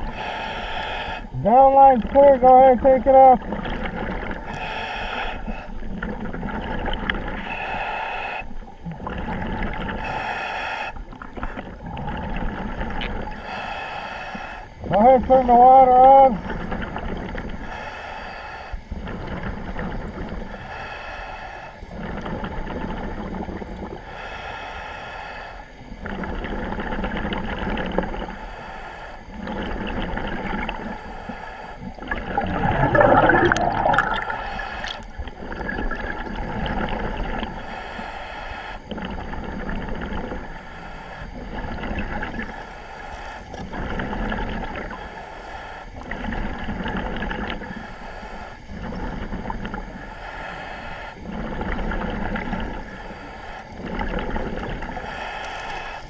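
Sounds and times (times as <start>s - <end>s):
diver breathing through regulator: 0.0s - 1.5s, 4.2s - 15.0s, 16.3s - 56.0s
gurgling surge of bubbles: 31.9s - 37.5s.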